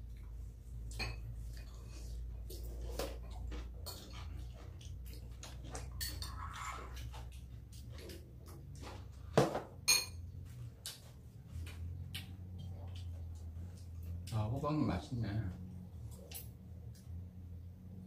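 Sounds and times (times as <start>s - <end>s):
utensils clinking on dishes: 5.6s - 6.8s, 9.8s - 10.3s.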